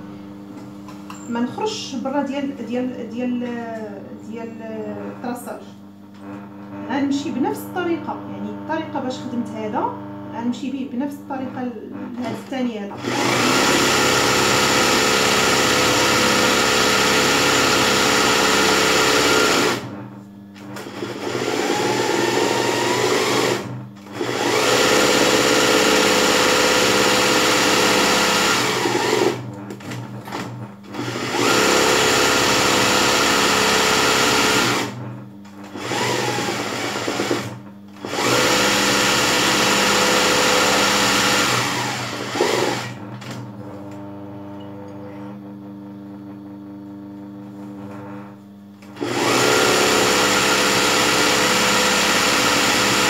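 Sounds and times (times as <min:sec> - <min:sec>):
sewing machine stitching: 0:12.0 - 0:19.9, 0:20.7 - 0:35.0, 0:35.6 - 0:43.4, 0:48.8 - 0:53.0.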